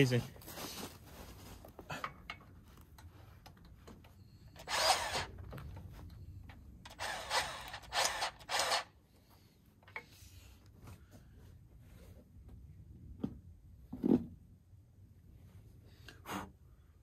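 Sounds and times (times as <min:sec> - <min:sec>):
grease gun motor bursts: 0:04.6 - 0:05.4, 0:06.9 - 0:08.9.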